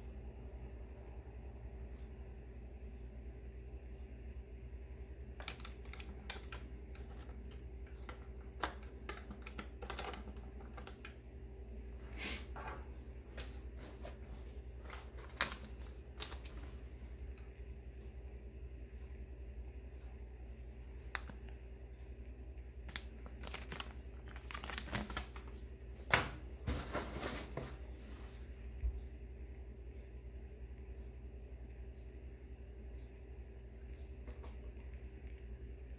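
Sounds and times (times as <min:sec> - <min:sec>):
steady low hum: 0:00.0 - 0:35.9
small hard parts clicking: 0:05.4 - 0:11.2
plastic bag crinkling: 0:14.8 - 0:16.8, 0:22.8 - 0:25.7.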